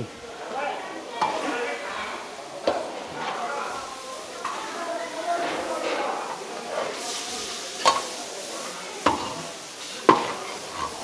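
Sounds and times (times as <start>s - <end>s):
meatballs sizzling in a wok: 0.1s - 11.0s
metal shovel scraping and clanking wok: 5.4s - 11.0s.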